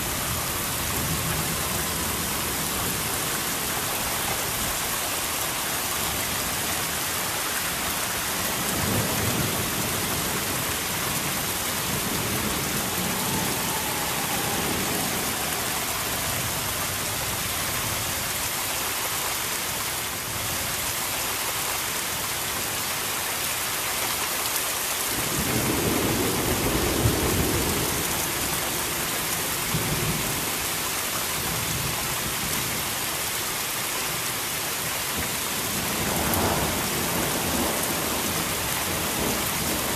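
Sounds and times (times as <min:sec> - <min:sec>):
steady rain: 0:00.0 - 0:39.9
thunder rumbling: 0:08.5 - 0:17.6.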